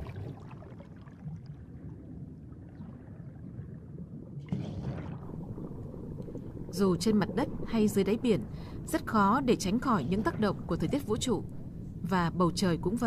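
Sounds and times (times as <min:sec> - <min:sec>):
rush of bubbles: 0:00.0 - 0:08.9
low underwater rumble: 0:00.0 - 0:13.0.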